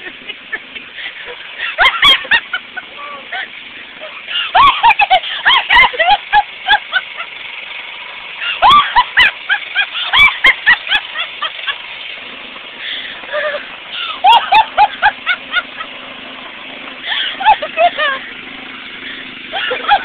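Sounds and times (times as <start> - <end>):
person cackling with laughter: 0.0 - 7.4, 8.4 - 11.8, 12.8 - 16.0, 17.0 - 20.0
rototiller engine running: 0.0 - 20.0.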